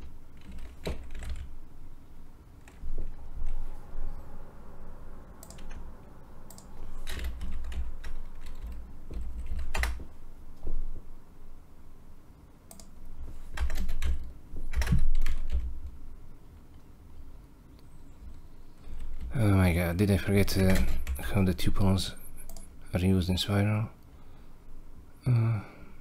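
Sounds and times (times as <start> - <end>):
typing on computer keyboard: 0.0 - 1.6, 5.4 - 5.9, 6.5 - 10.1, 12.7 - 15.7, 20.6 - 21.2.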